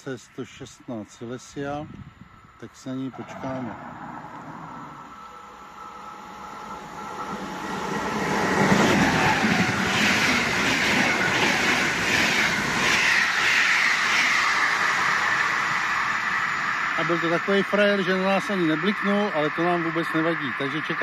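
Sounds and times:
train rushing past: 0:03.1 - 0:20.9
wheels beating on rails: 0:06.6 - 0:20.2.

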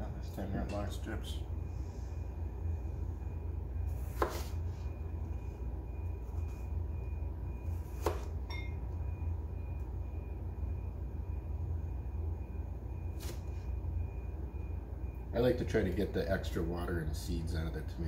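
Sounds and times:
steady low hum: 0:00.0 - 0:18.0
knife slicing tomato: 0:03.9 - 0:04.6, 0:07.8 - 0:08.3
light ting: 0:08.4 - 0:09.0.

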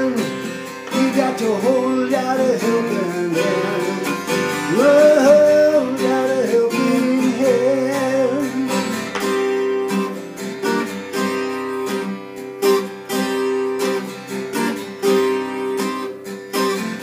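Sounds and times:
person singing: 0:00.0 - 0:09.2
acoustic guitar strumming: 0:00.0 - 0:17.0.

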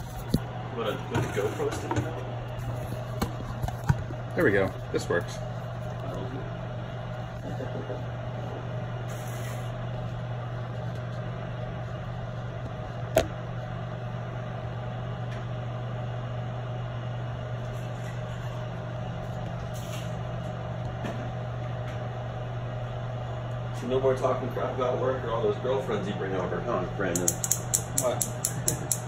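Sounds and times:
low mechanical hum: 0:00.0 - 0:29.0
sharp click: 0:27.2 - 0:29.0.

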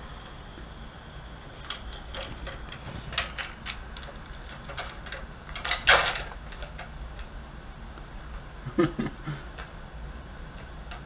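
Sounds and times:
baby monitor hum: 0:00.0 - 0:11.0
toys clicking and rattling: 0:01.6 - 0:07.4.

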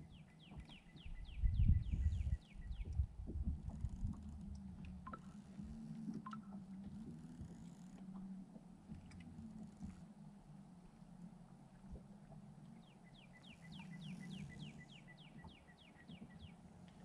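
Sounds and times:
faint bird chirps: 0:00.0 - 0:03.0, 0:12.8 - 0:16.6.

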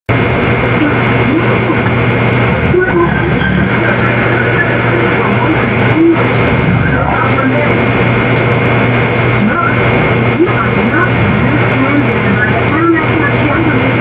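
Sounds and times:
loud dense hiss: 0:00.1 - 0:14.0
muffled sound fragments: 0:00.1 - 0:14.0
steady low hum: 0:00.1 - 0:14.0.

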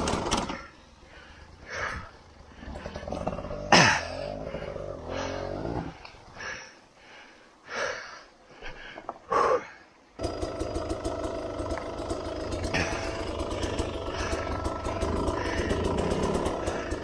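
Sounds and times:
dirt bike engine running: 0:00.0 - 0:00.7, 0:10.2 - 0:17.0.

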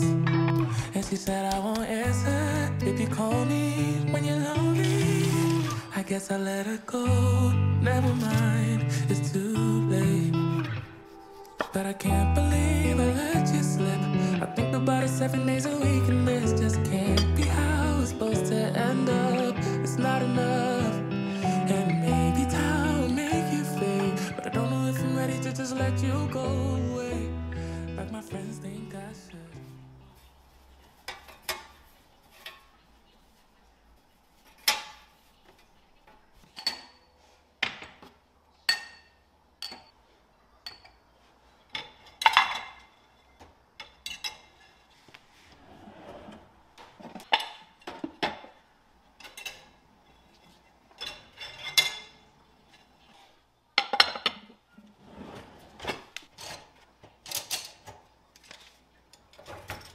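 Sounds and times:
dishes and utensils clinking: 0:36.4 - 0:38.0, 0:38.6 - 0:40.0, 0:40.6 - 0:41.0, 0:41.7 - 0:44.8, 0:49.2 - 0:52.8.

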